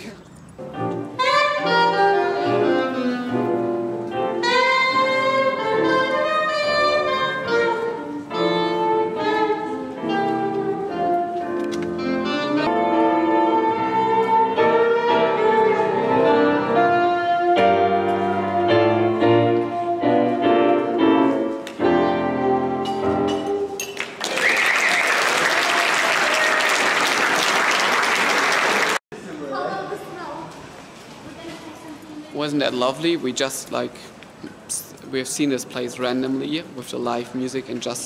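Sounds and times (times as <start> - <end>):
live piano music: 0.4 - 24.2
audience applause: 24.0 - 29.0.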